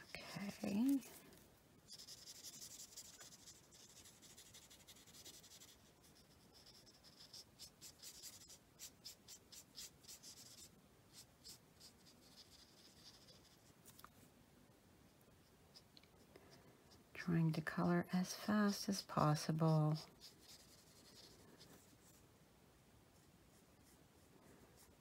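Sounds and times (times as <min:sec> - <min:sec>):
marker scratching on cardstock: 0:01.9 - 0:13.7, 0:18.9 - 0:22.2.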